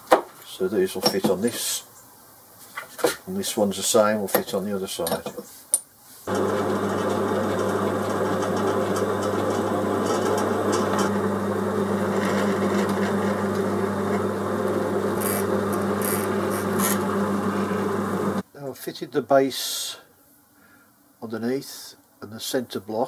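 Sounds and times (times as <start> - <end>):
drill grinding through metal: 6.3 - 18.4
drilling machine motor hum: 6.3 - 18.4
swarf brushed off scratching: 15.2 - 17.7.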